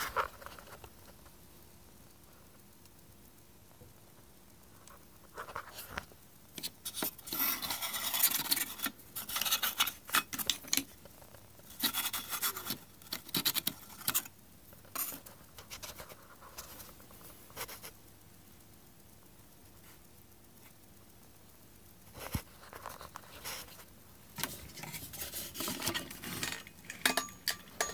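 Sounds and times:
scratching on hard surface: 0:04.9 - 0:14.3, 0:22.1 - 0:27.9.

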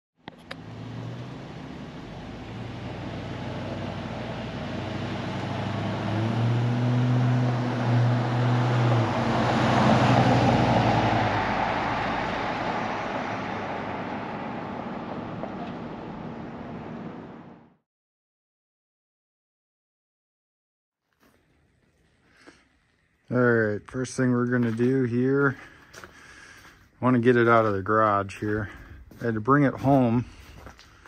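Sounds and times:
engine running: 0:00.2 - 0:17.7
broad rushing swell: 0:03.5 - 0:17.5.

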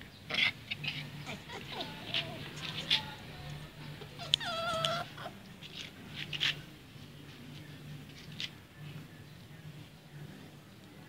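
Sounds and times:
dog whining: 0:00.8 - 0:03.1, 0:04.0 - 0:05.4.

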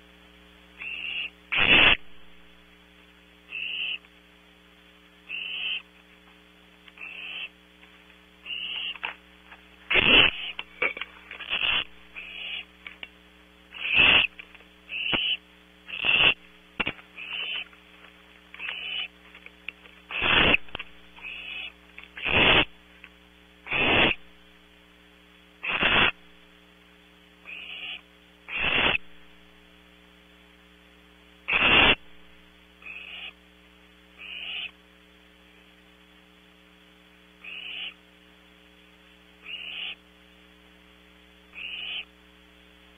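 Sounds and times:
electrical hum: 0:00.0 - 0:42.9
owlets hissing: 0:09.9 - 0:12.7, 0:13.7 - 0:16.5, 0:20.1 - 0:22.7, 0:23.7 - 0:24.2, 0:25.6 - 0:26.2, 0:27.5 - 0:29.0.

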